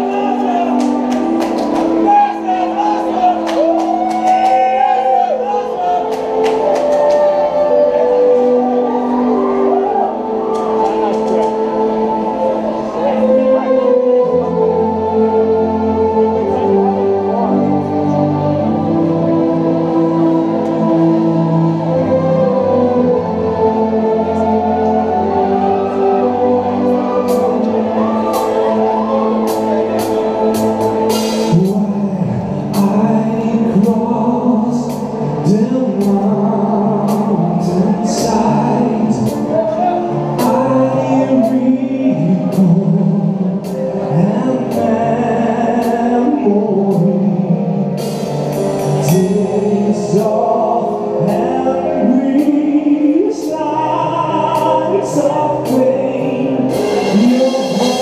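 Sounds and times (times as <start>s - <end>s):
man singing long notes: 0.0s - 58.0s
drum and cymbal hits: 29.5s - 31.8s, 56.7s - 58.0s
metal band playing: 56.6s - 58.0s.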